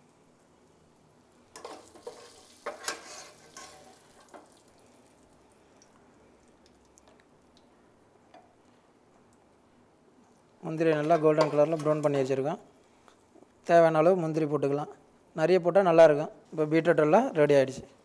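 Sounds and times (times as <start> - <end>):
metal spoon scraping glass dish: 1.6 - 3.9.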